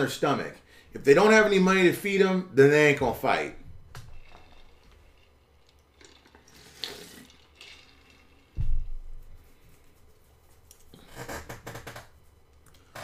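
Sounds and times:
person sipping and swallowing: 4.2 - 8.5
low thump: 8.6 - 9.3.

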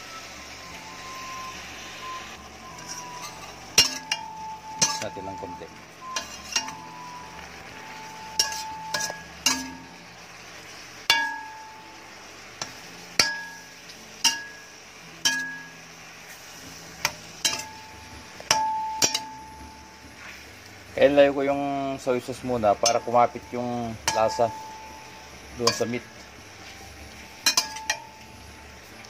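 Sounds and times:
spoon knocking on metal pan: 18.5 - 19.3.

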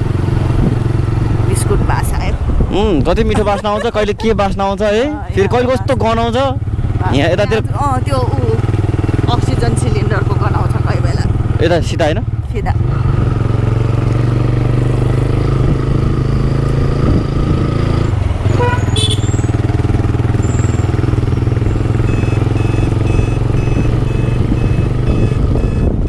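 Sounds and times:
motorcycle engine running: 0.0 - 26.0
wind and road noise: 0.0 - 26.0
short electronic beeps: 20.4 - 26.0.

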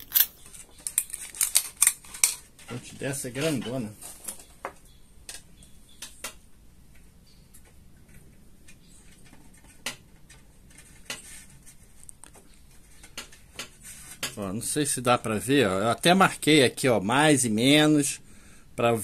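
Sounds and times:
plastic parts clicking: 0.0 - 2.4.

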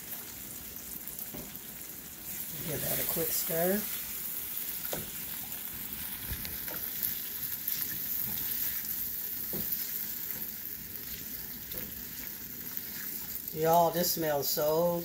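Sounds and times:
chicken sizzling in a pan: 0.0 - 15.0
spatula knocking against pan: 9.5 - 10.4.

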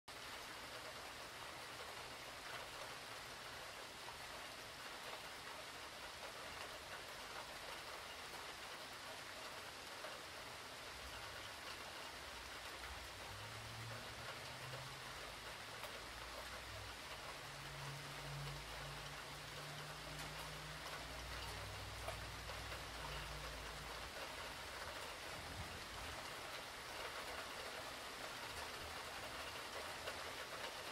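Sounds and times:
heavy rain hissing: 0.4 - 30.9.

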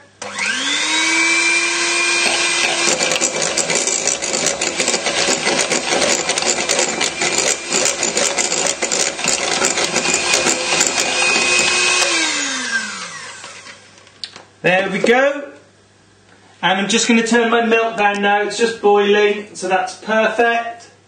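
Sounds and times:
hand mixer motor whining: 0.2 - 14.0
beaters rattling against bowl: 2.6 - 12.2.

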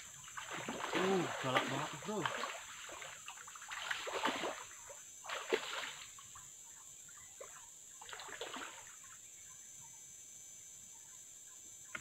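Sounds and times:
turtle thrashing in water: 0.3 - 4.6.

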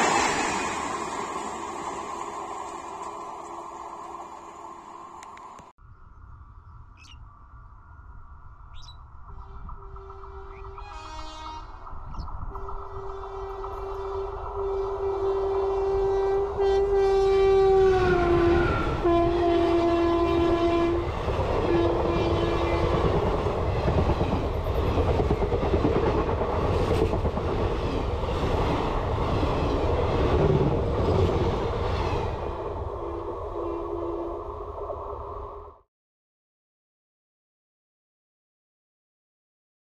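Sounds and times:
train horn: 9.3 - 11.9, 12.5 - 23.1, 33.1 - 34.5
train wheels clattering on rails: 21.2 - 32.3.

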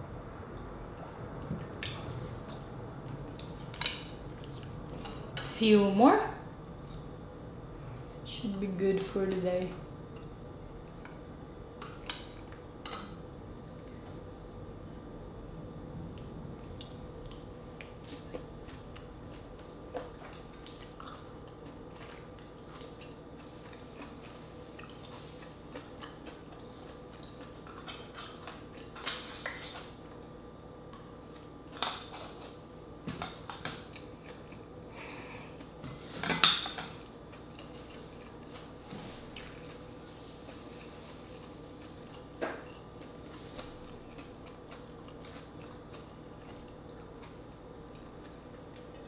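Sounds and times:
faint steady hum: 0.0 - 49.0
person chewing: 6.8 - 7.2, 16.2 - 30.4, 33.5 - 35.8, 37.0 - 49.0.

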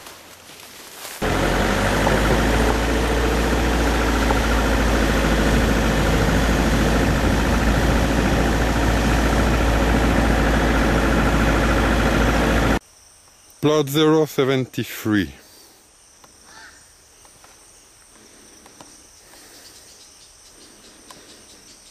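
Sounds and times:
road and wind noise: 1.2 - 12.8
vehicle engine running: 1.2 - 12.8.

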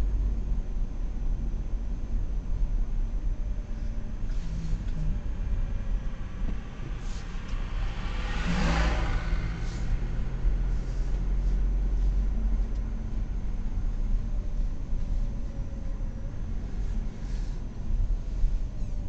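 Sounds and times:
car engine and road rumble: 0.0 - 19.0
rush of noise: 5.2 - 12.4.

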